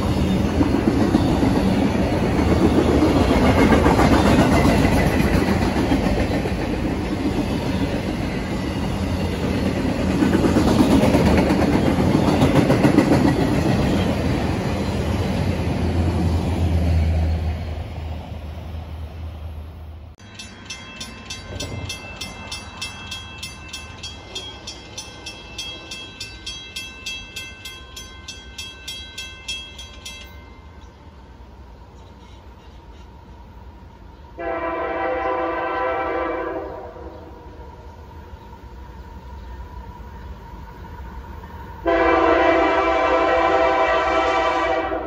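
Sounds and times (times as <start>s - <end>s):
freight cars rumbling on rails: 0.0s - 45.0s
rapid high-pitched ringing: 20.2s - 30.8s.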